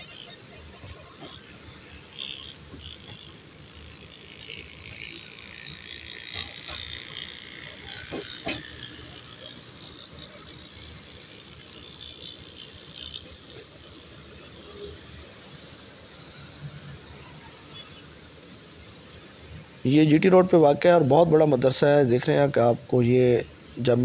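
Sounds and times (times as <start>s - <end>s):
train squeal and rattle: 0.0s - 18.6s
train running noise: 0.0s - 24.0s.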